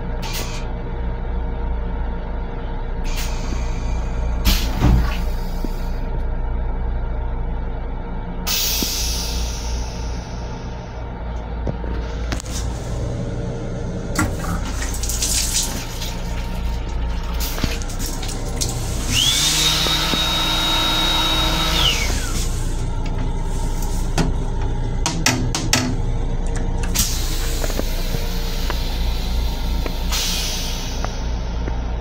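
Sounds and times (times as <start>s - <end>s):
pump whine: 0.0s - 32.0s
steady low hum: 0.0s - 32.0s
faucet water running: 14.2s - 21.7s.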